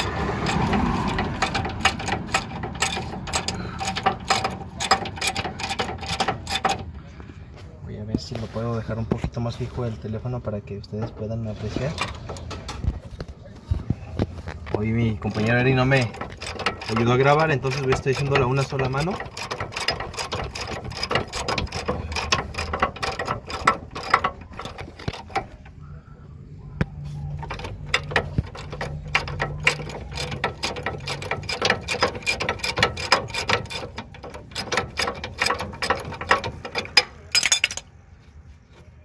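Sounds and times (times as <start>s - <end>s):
ratchet wrench clicking rapidly: 0.0s - 6.9s, 15.2s - 25.8s, 27.3s - 37.8s.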